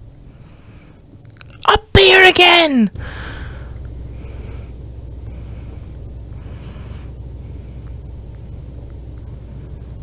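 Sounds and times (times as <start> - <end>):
steady low hum: 0.0 - 10.0
person breathing softly: 0.2 - 1.1, 3.0 - 8.0.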